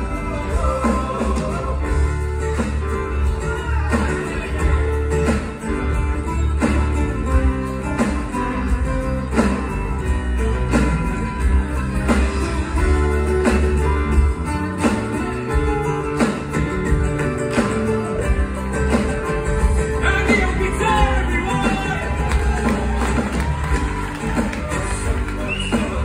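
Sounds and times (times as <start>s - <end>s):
person singing: 0.0s - 5.5s
live band playing: 0.0s - 26.0s
strummed guitars: 0.0s - 26.0s.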